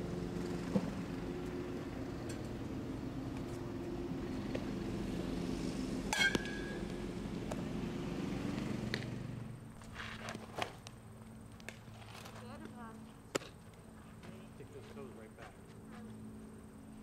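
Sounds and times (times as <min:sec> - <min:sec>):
low mechanical drone: 0:00.0 - 0:10.3
metal bat hitting ball: 0:06.1 - 0:07.0.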